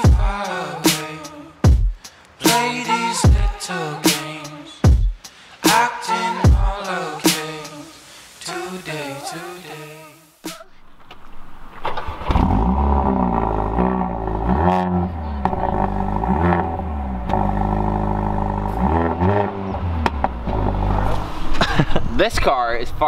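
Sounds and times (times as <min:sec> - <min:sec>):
exhaust pops: 0:11.0 - 0:21.7
car engine starting and revving: 0:11.7 - 0:22.1.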